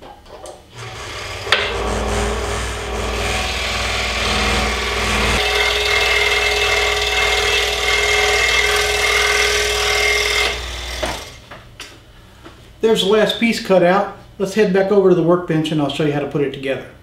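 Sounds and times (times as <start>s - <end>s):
low hum: 0.8s - 6.9s
scroll saw cutting wood: 0.8s - 11.4s.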